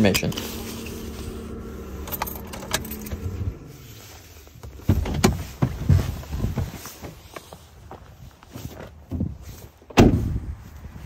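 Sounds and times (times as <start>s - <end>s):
engine hum winding down: 0.0s - 4.5s
thumps and rustles of climbing out: 2.0s - 10.8s.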